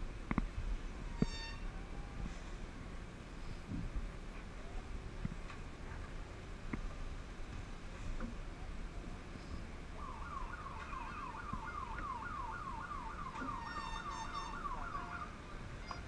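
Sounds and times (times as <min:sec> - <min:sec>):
electronic siren yelping: 0:10.0 - 0:16.0.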